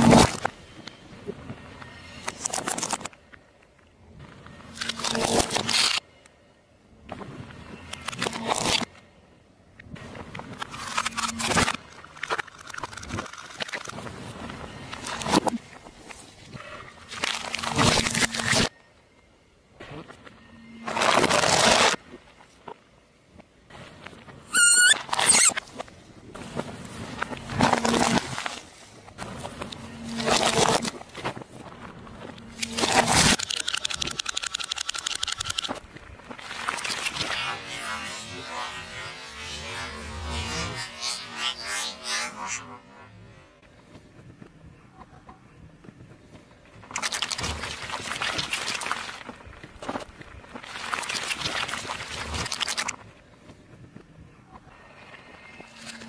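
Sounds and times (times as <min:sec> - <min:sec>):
toy cars crunching under tyre: 0:00.0 - 0:00.6, 0:02.2 - 0:03.2, 0:04.6 - 0:06.0, 0:07.8 - 0:09.0, 0:10.4 - 0:18.8, 0:20.8 - 0:22.2, 0:24.5 - 0:41.7, 0:46.8 - 0:53.1
clockwork toy clicking: 0:33.2 - 0:35.8.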